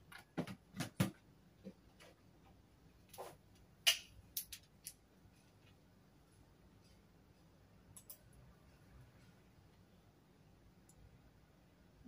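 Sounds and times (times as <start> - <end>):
objects clicking and knocking on desk: 0.0 - 2.2.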